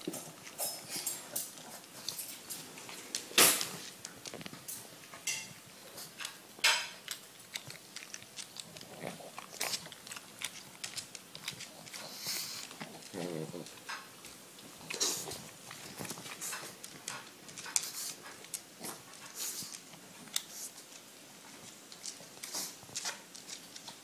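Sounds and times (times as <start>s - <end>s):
dog chewing with wet smacks: 5.7s - 24.0s.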